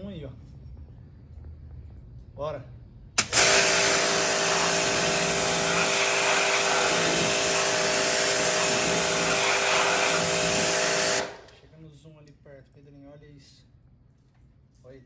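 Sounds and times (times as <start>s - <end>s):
high-pressure water jet hissing: 3.2s - 11.4s
pressure washer motor hum: 3.2s - 11.6s.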